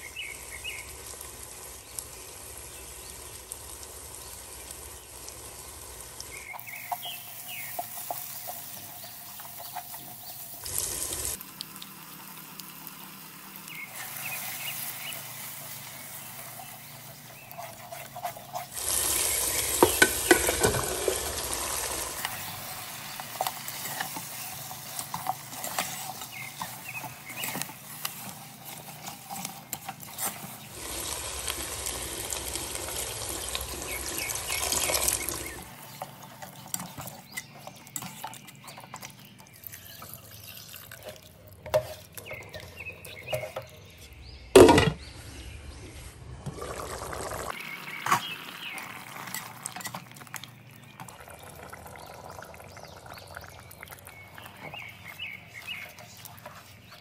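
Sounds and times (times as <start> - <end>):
meat sizzling in pan: 0.0 - 29.2, 30.7 - 35.9
spatula scraping pan: 15.6 - 32.0.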